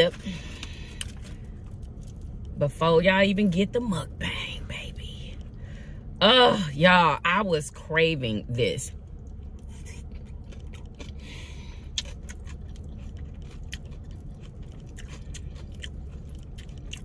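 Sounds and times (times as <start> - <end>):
chewing with wet mouth clicks: 9.1 - 17.0.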